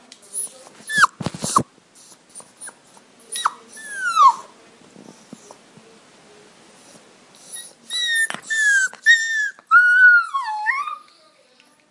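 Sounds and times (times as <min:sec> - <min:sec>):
puppies whimpering: 0:02.6 - 0:04.5, 0:07.5 - 0:11.1.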